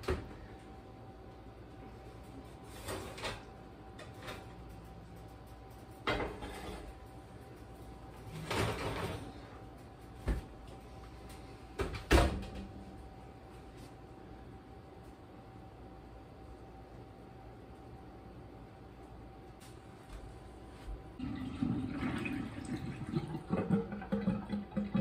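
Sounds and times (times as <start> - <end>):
baking pans and oven rack clattering: 8.3 - 9.4.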